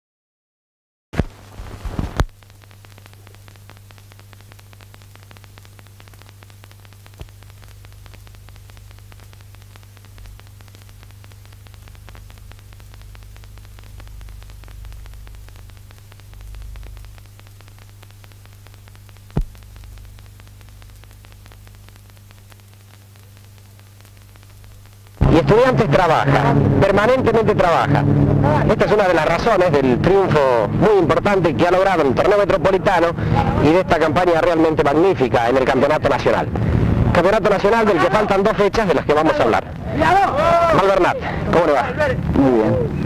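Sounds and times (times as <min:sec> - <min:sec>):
electrical hum and hiss: 0:01.2 - 0:43.0
sharp clicks: 0:02.0 - 0:25.8
soft low rumbling: 0:10.2 - 0:22.8, 0:24.0 - 0:34.4, 0:36.0 - 0:38.4.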